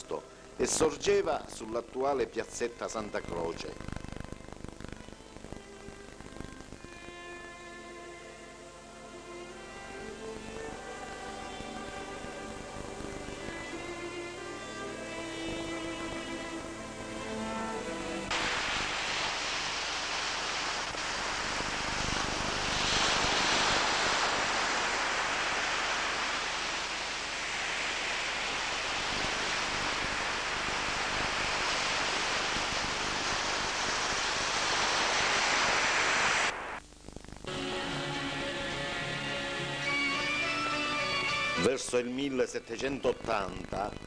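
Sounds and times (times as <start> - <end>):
waves breaking on sandy shore: 18.3 - 36.8.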